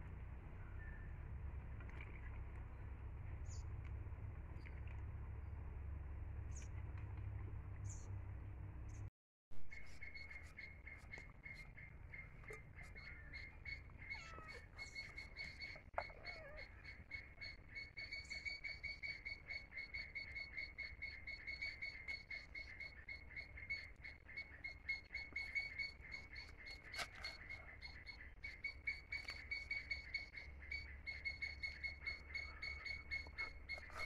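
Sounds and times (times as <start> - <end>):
animal chirping high pitch: 12.5 - 34.0.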